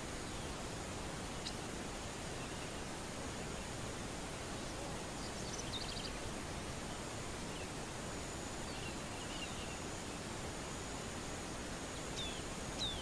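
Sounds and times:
outdoor background hiss: 0.0s - 13.0s
soft bird chirps: 1.4s - 1.7s, 4.5s - 6.2s, 8.6s - 10.2s, 11.9s - 13.0s.

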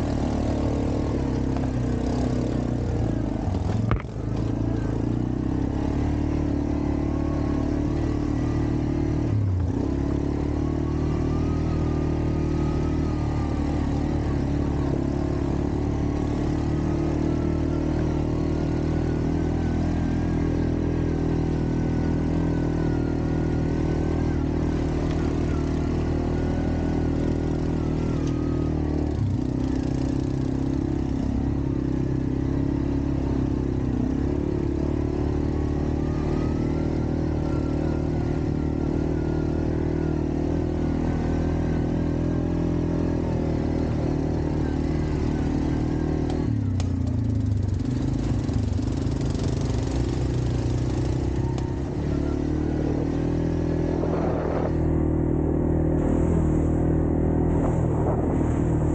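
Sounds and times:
atv engine running: 0.0s - 58.9s
wavering whine: 49.9s - 58.9s.

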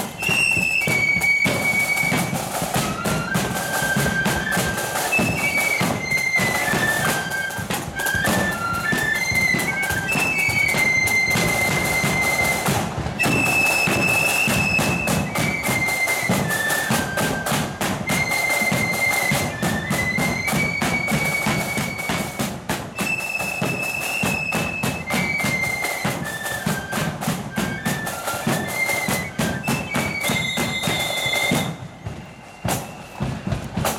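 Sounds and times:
flutes playing in unison: 0.0s - 33.9s
marching drums: 0.0s - 33.9s.

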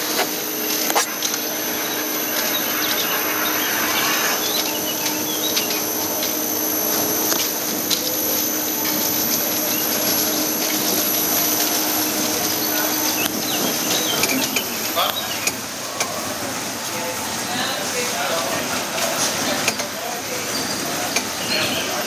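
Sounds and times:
constant whine: 0.0s - 17.4s
roller coaster car rolling on track: 0.0s - 22.0s.

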